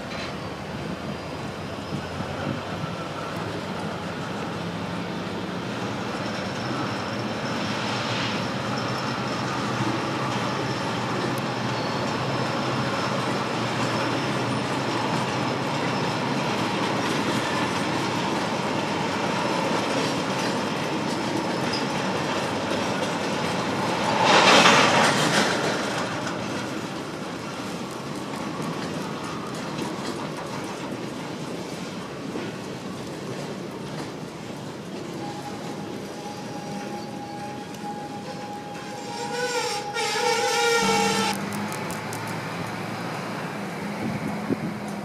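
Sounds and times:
train wheels clicking over rail joints: 0.0 - 1.1, 8.6 - 45.0
high wheel squeal: 0.0 - 3.3, 5.8 - 16.4, 21.4 - 22.2, 35.1 - 41.4.

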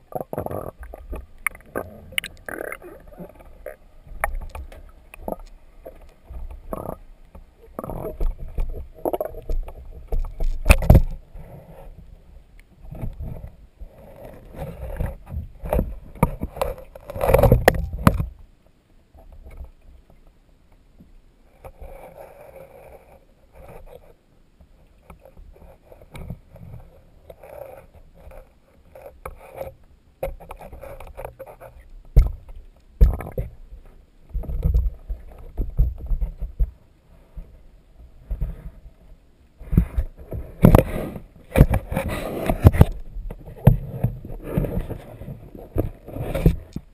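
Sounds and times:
water sloshing: 0.0 - 11.2
muffled underwater knocks and bumps: 0.1 - 11.2, 14.6 - 18.4, 30.2 - 37.6, 39.6 - 46.9.

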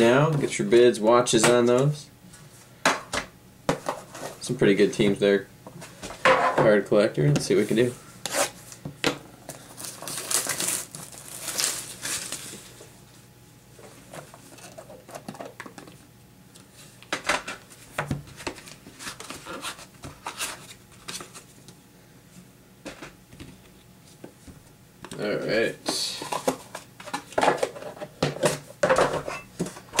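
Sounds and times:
plastic wrap crinkling: 9.5 - 12.9.

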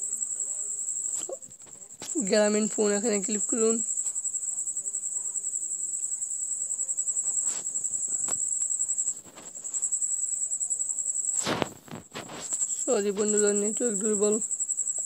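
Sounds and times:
cricket chirping: 0.0 - 15.0.

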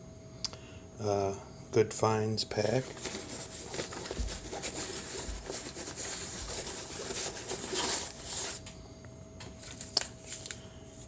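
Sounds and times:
rummaging in fabric pouch: 2.8 - 8.6.

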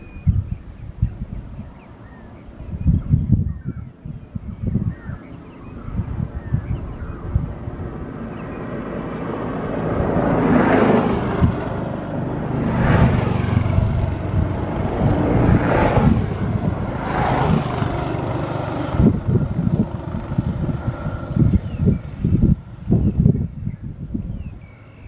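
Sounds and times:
wind buffeting microphone: 0.0 - 25.0
vehicles passing by: 0.8 - 25.0.

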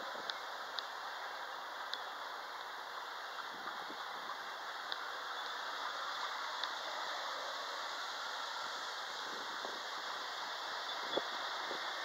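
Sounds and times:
train wheels rumbling on rails: 0.0 - 12.0
high wheel squeaks: 10.1 - 12.0.

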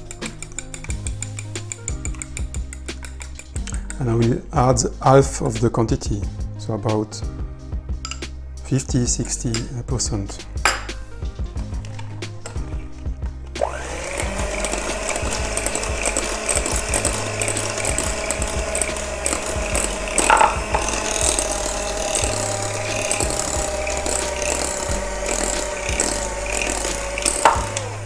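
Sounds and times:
electric hand mixer whine: 13.6 - 28.0.

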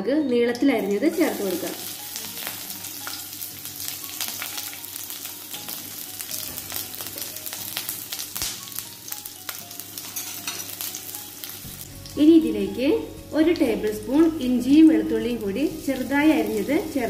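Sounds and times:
spices sizzling in hot oil: 0.6 - 17.0
oil crackling and popping: 0.8 - 12.2.

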